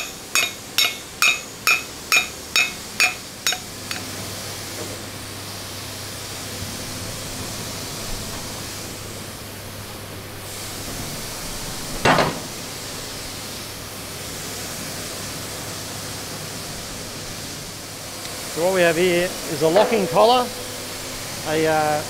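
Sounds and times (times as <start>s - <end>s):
workshop hiss: 0.0s - 22.0s
low hum: 19.4s - 21.4s.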